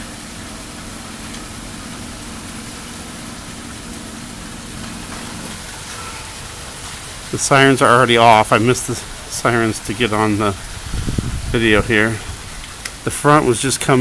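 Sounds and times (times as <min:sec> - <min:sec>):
low steady hum: 0:00.0 - 0:14.0
rain falling steadily: 0:00.0 - 0:14.0.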